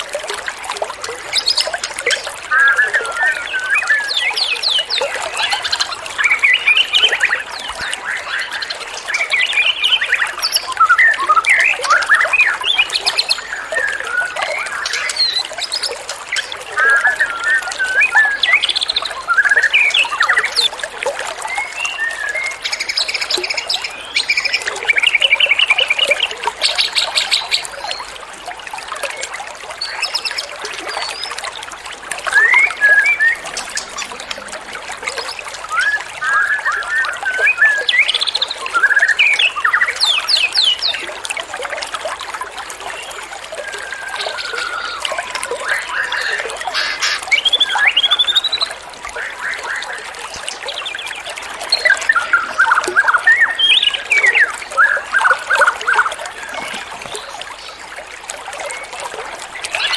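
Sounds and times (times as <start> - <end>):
songbirds singing: 1.2 - 28.1, 29.0 - 31.5, 32.2 - 41.1, 42.8 - 59.9
running water hiss: 42.9 - 59.9.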